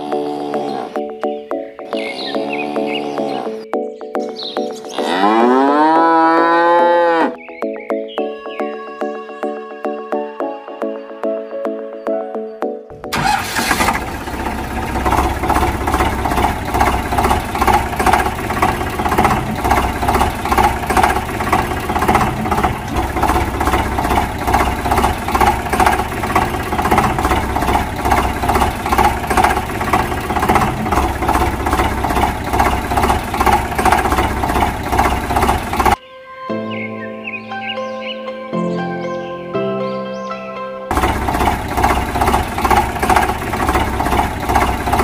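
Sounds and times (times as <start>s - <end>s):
tractor engine chugging: 13.1s - 36.0s, 40.9s - 45.0s.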